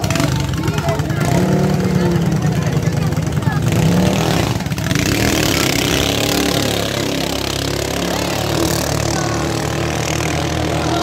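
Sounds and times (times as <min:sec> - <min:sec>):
boat engines droning: 0:00.0 - 0:11.0.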